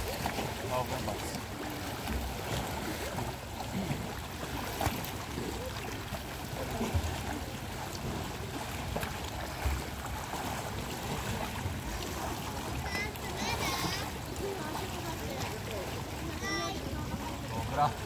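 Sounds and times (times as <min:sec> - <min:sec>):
water washing against rocks: 0:00.0 - 0:05.7.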